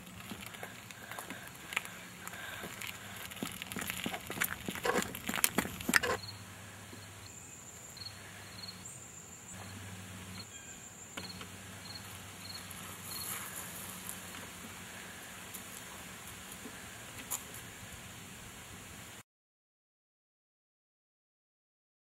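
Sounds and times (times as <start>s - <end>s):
low steady hum: 0.0s - 19.2s
insects chirping: 0.3s - 15.5s.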